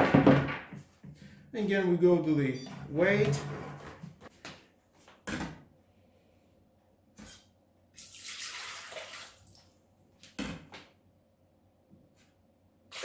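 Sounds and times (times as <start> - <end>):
water pouring into steel bowl: 8.0 - 9.6.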